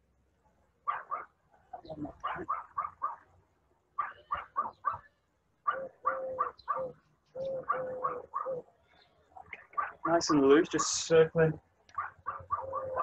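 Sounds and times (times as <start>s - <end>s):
dog barking: 0.8s - 1.4s, 2.1s - 3.3s, 4.0s - 7.0s, 7.6s - 8.7s, 9.6s - 10.4s, 11.9s - 13.0s.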